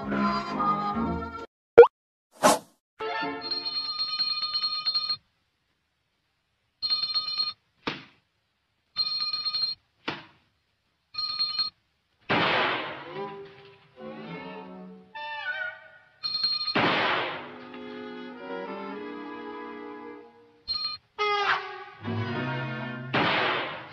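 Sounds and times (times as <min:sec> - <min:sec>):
quick swishes: 0:02.4 - 0:02.7.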